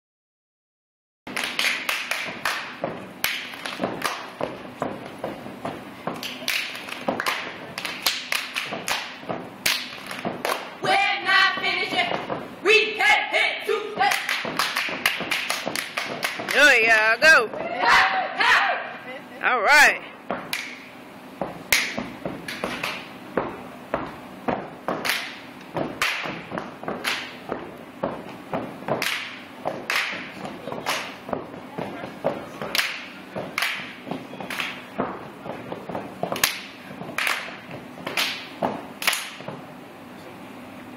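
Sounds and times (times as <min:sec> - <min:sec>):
hand claps: 0:01.3 - 0:04.4, 0:06.2 - 0:10.8, 0:14.1 - 0:16.7, 0:20.5 - 0:20.9, 0:21.7 - 0:23.1, 0:24.9 - 0:27.4, 0:28.9 - 0:31.2, 0:32.6 - 0:34.8, 0:35.8 - 0:39.6
foot stomps: 0:02.0 - 0:12.6, 0:13.8 - 0:18.0, 0:20.2 - 0:39.7
body slaps: 0:21.4 - 0:31.4.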